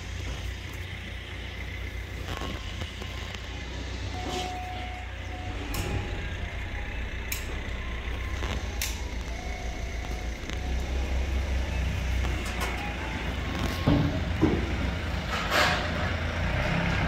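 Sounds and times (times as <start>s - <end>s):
low rumble of trucks: 0.0s - 17.0s
sharp clicks: 8.4s - 10.9s.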